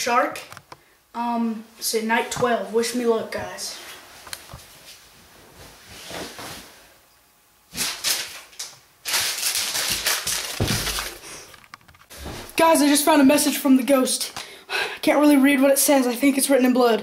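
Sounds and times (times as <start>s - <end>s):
bedding rustling: 2.2s - 7.0s, 12.1s - 13.3s.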